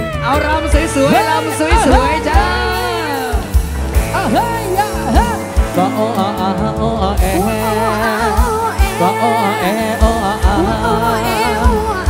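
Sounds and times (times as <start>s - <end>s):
heavy low drum hits: 0.8s - 6.0s.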